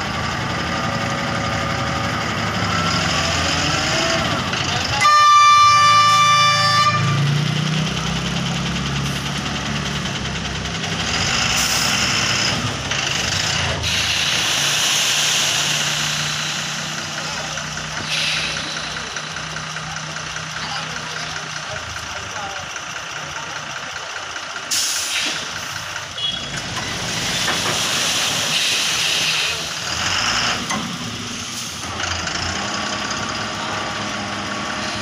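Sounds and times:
diesel engine running: 0:00.0 - 0:35.0
truck horn blast: 0:04.9 - 0:07.3, 0:26.2 - 0:26.5
rushing hiss: 0:13.8 - 0:16.9, 0:27.0 - 0:29.8.

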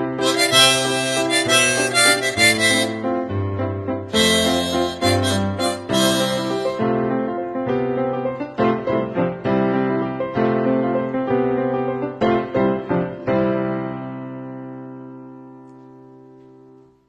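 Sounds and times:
harmonica note: 0:00.0 - 0:03.5, 0:04.1 - 0:06.8
digital piano chords: 0:00.0 - 0:17.0.

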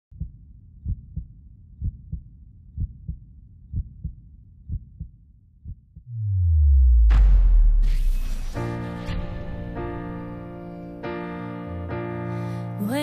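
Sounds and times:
heartbeat thumps: 0:00.1 - 0:07.8
low rumble: 0:06.0 - 0:11.0.

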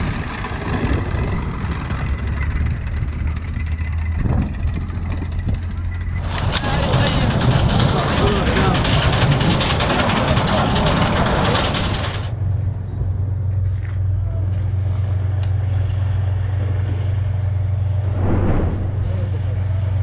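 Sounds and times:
vehicle engine running: 0:00.0 - 0:20.0
men's voices: 0:06.2 - 0:12.3.

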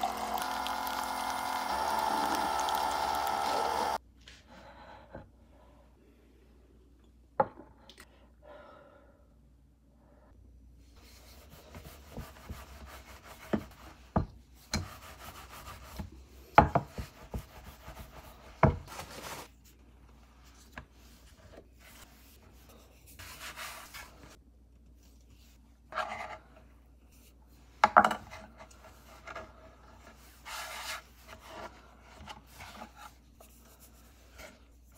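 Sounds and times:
rolling pin rubbing on dough: 0:11.0 - 0:19.5, 0:20.2 - 0:24.4, 0:28.5 - 0:34.9.

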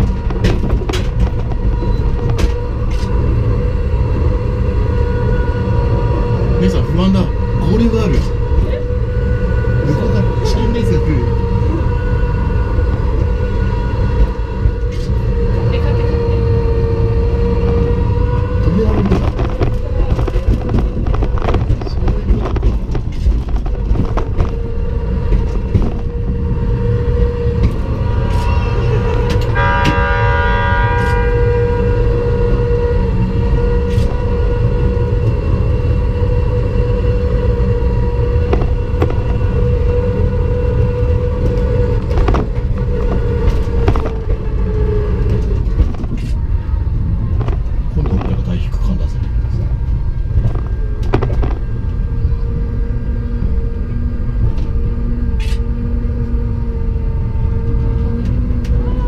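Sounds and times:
wheels rumbling on track: 0:00.0 - 0:59.0
train horn: 0:27.6 - 0:35.2.

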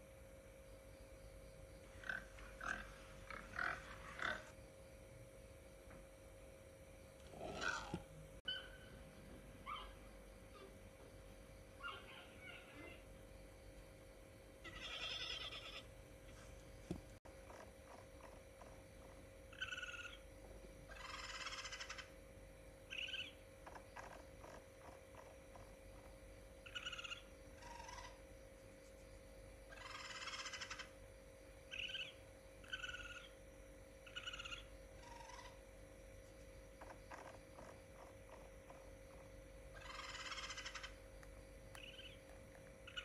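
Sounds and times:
faint steady hum: 0:00.0 - 0:43.0
raccoon chirping calls: 0:07.6 - 0:09.0, 0:09.6 - 0:10.7, 0:11.8 - 0:13.1, 0:14.6 - 0:15.9, 0:19.5 - 0:20.3, 0:20.9 - 0:22.2, 0:22.9 - 0:28.2, 0:29.7 - 0:31.0, 0:31.7 - 0:33.4, 0:34.0 - 0:35.6, 0:36.8 - 0:38.8, 0:39.7 - 0:41.1, 0:41.7 - 0:43.0
raccoon rattling trill: 0:11.7 - 0:13.0, 0:14.6 - 0:15.9, 0:17.4 - 0:20.3, 0:20.9 - 0:22.2, 0:22.9 - 0:28.2, 0:29.7 - 0:31.0, 0:31.7 - 0:33.4, 0:34.0 - 0:35.6, 0:36.8 - 0:41.1, 0:41.7 - 0:43.0.

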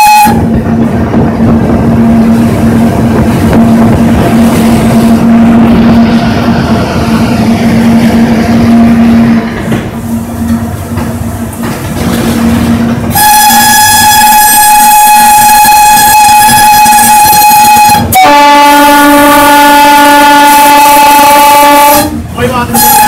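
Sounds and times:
loud locomotive horn blasts: 0:00.0 - 0:00.6, 0:02.0 - 0:06.2, 0:13.1 - 0:23.0
locomotive rumble and hum: 0:00.0 - 0:23.0.

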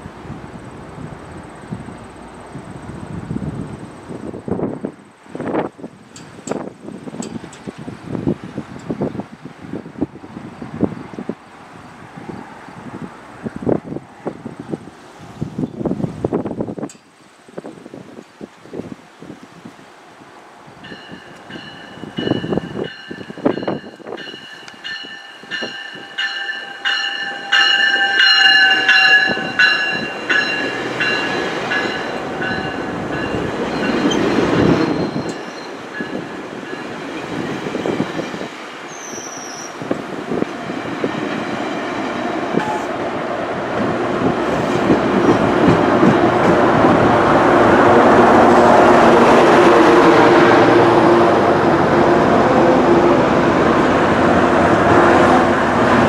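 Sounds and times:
diesel locomotive passing: 0:00.0 - 0:17.0, 0:18.1 - 0:56.0
train rumbling and clattering: 0:00.0 - 0:56.0
level crossing bell ringing: 0:23.0 - 0:32.9.

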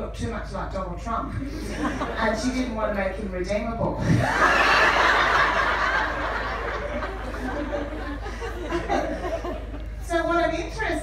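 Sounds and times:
audience laughing: 0:04.2 - 0:10.0.

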